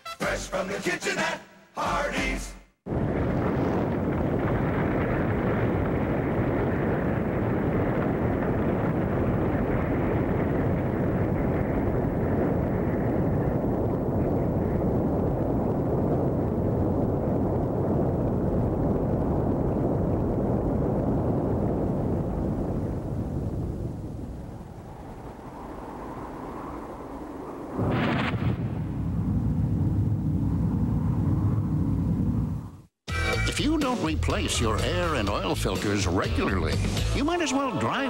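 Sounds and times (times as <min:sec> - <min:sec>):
dense rumbling roar: 0:02.9 - 0:32.9.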